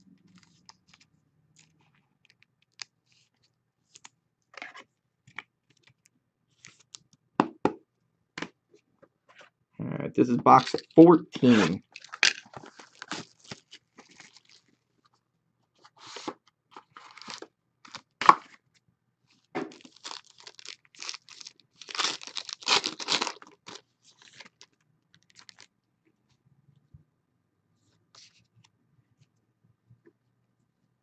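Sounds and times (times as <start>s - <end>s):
wrapper tearing and crinkling: 10.6s - 11.0s, 11.6s - 14.7s, 16.9s - 18.4s, 19.7s - 25.7s.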